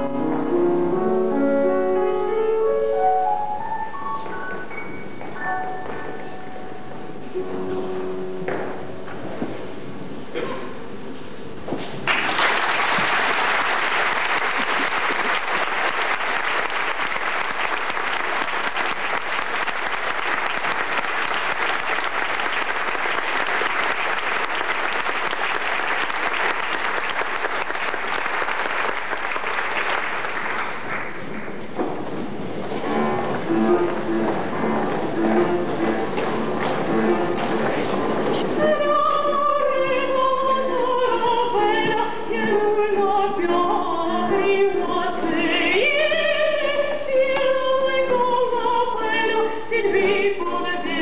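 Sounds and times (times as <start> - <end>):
instrumental music: 0.0 - 9.8, 32.6 - 51.0
audience applauding: 12.0 - 31.5.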